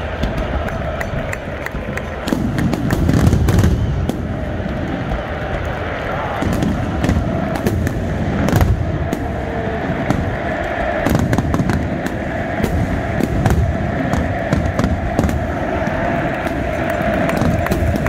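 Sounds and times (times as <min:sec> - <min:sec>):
fireworks bursting and crackling: 0:00.0 - 0:18.0
stadium crowd noise: 0:00.0 - 0:18.0.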